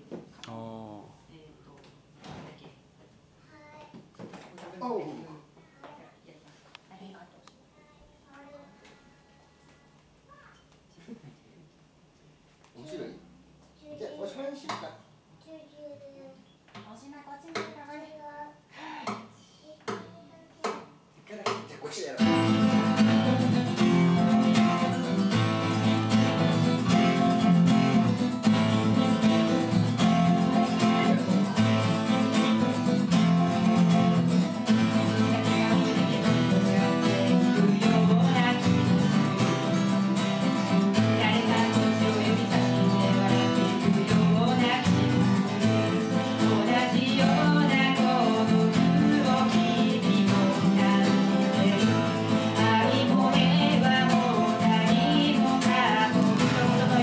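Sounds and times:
acoustic guitars strummed: 0:22.2 - 0:57.0
woman singing: 0:30.0 - 0:57.0.

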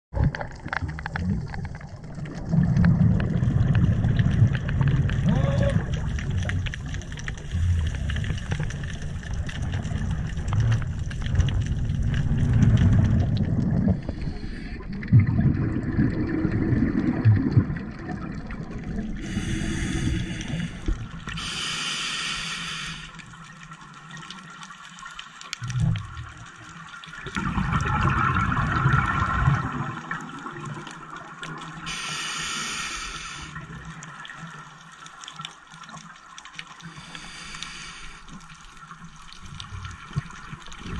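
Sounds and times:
underwater exhaled bubbles: 0:00.1 - 0:40.9
regulator hissing breaths: 0:19.2 - 0:23.2, 0:31.9 - 0:33.6, 0:36.9 - 0:38.4.

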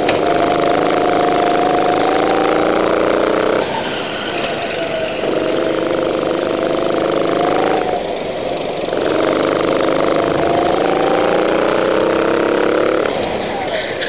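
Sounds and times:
go-kart engine revving: 0:00.0 - 0:14.0.

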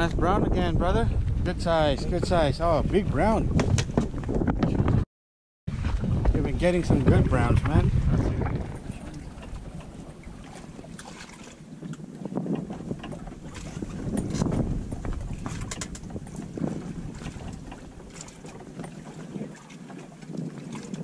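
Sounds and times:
wind buffeting microphone: 0:00.0 - 0:05.0, 0:05.7 - 0:21.0
water slapping against boat hull: 0:01.2 - 0:05.0, 0:05.7 - 0:21.0.

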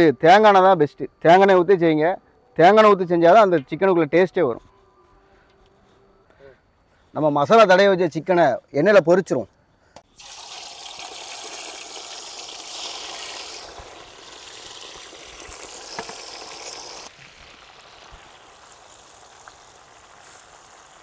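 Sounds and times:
chicken deep-frying in oil: 0:10.1 - 0:21.0.

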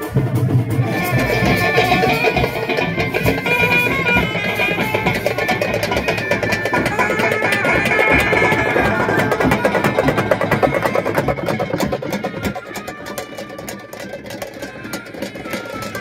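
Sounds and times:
dense crowd noise: 0:00.0 - 0:16.0
frame drums beaten quickly: 0:00.0 - 0:16.0.

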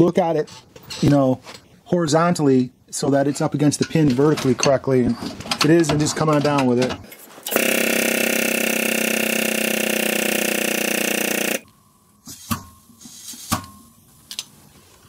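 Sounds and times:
shop press humming: 0:07.5 - 0:11.6.

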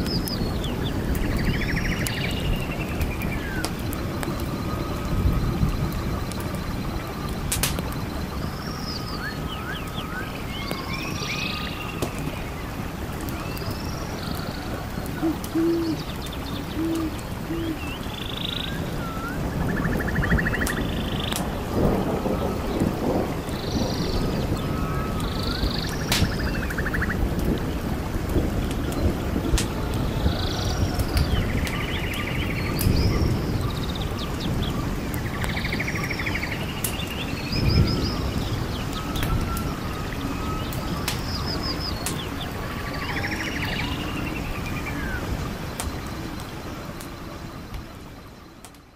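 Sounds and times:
forest background hiss: 0:00.0 - 0:48.9
small birds chirping and trilling: 0:00.0 - 0:48.9
songbirds singing: 0:00.0 - 0:48.9
owl hooting: 0:15.2 - 0:16.1, 0:16.7 - 0:17.9.

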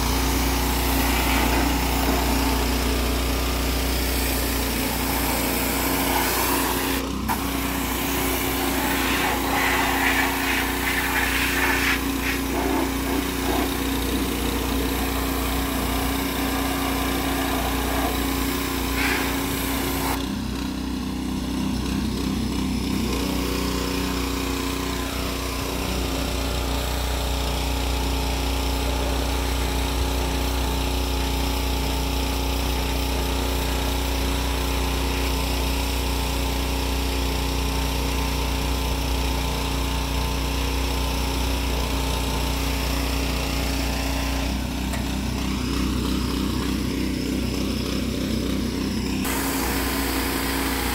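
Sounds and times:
hissing water spray: 0:00.0 - 0:20.2, 0:49.2 - 0:50.9
pressure washer engine running: 0:00.0 - 0:50.9.

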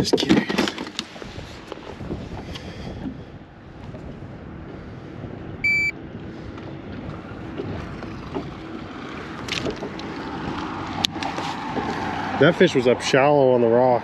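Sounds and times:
low wind noise: 0:00.0 - 0:14.0
short electronic beep: 0:05.6 - 0:06.0.

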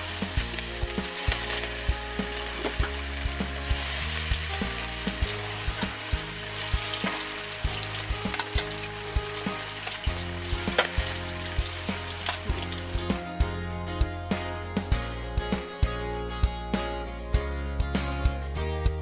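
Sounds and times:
chicken sizzling in hot oil: 0:00.0 - 0:13.5
background music with beat: 0:00.0 - 0:19.0.

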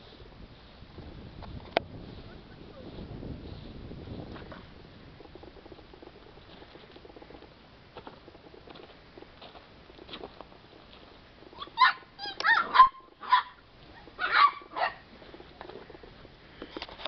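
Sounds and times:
puppies yapping: 0:11.5 - 0:15.1.

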